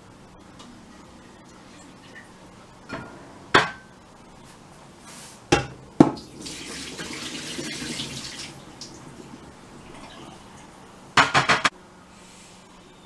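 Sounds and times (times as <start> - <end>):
tap water running: 6.0 - 10.7.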